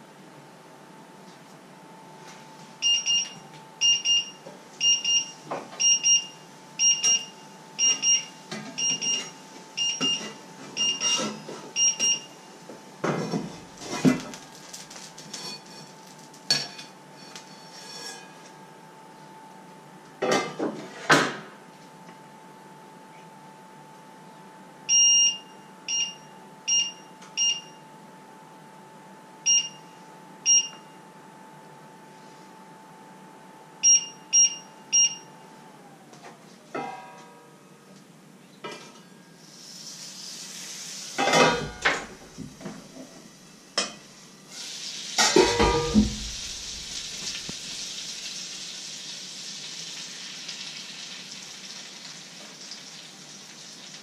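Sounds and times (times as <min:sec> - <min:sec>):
faint hum: 0:00.0 - 0:20.2, 0:21.5 - 0:49.8
short electronic beeps: 0:29.5 - 0:29.8, 0:30.5 - 0:30.8, 0:33.8 - 0:35.3
frying pan sizzling: 0:39.4 - 0:43.0, 0:44.0 - 0:54.0
pan lid and frying pan clattering: 0:45.2 - 0:46.4.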